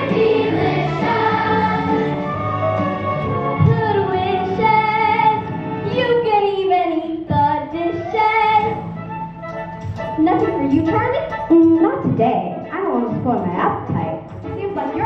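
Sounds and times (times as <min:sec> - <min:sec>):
children singing: 0:00.0 - 0:06.2
musical accompaniment: 0:00.0 - 0:15.0.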